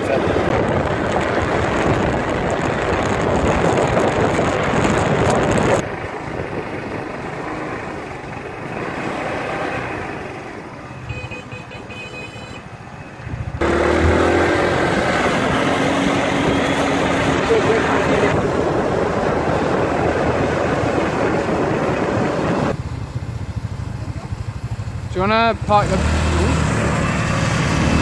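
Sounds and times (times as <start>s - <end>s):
wind on microphone: 0.0s - 9.0s, 13.0s - 22.8s
road noise: 0.0s - 28.0s
motor scooter engine: 13.5s - 28.0s.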